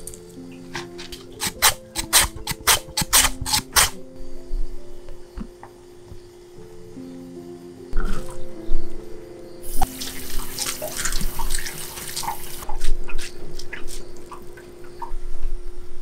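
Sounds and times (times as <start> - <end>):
tap water running into sink: 9.8 - 12.6
water dripping and splashing: 9.8 - 15.0.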